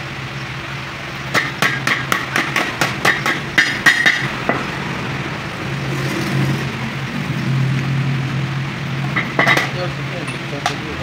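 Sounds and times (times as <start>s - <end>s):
hammer tapping metal disc: 1.4s - 4.3s.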